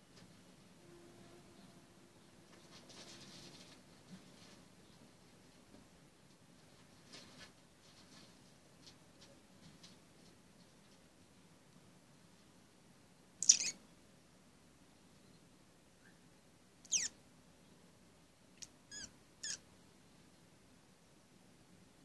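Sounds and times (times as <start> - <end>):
hamster squeaking: 13.4 - 13.8, 16.9 - 17.2, 18.9 - 19.6.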